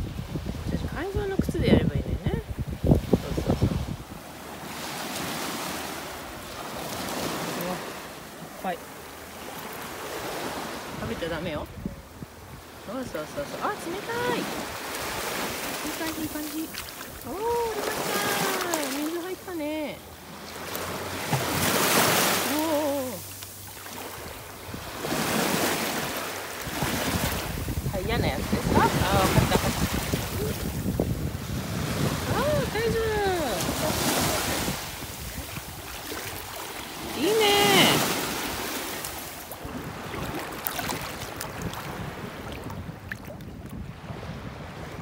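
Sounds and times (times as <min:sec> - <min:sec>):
wind buffeting microphone: 0:00.0 - 0:04.2, 0:24.1 - 0:38.8, 0:39.5 - 0:45.0
small waves washing on beach: 0:00.0 - 0:45.0.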